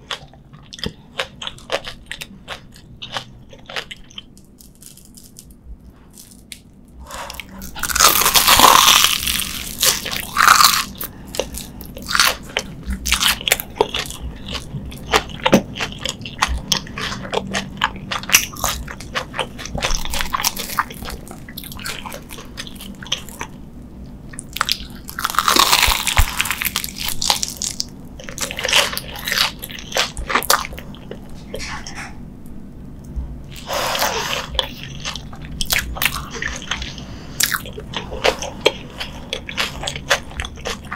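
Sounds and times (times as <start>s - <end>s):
crunchy bites into fried batter: 24.5s - 30.6s.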